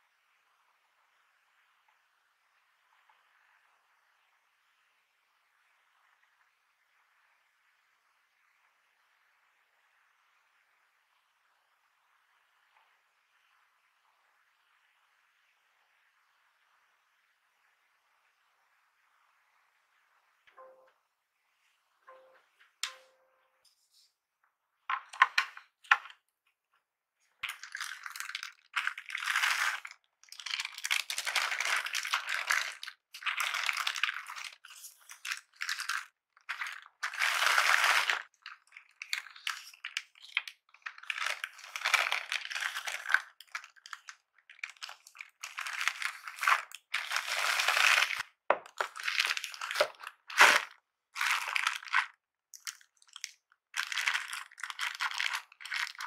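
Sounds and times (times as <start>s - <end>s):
tissue paper rustling: 44.8s - 48.2s, 53.8s - 56.0s.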